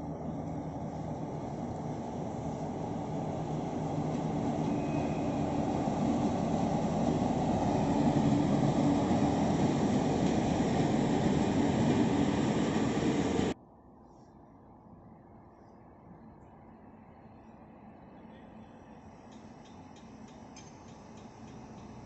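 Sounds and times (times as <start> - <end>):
diesel locomotives droning: 0.0 - 13.6.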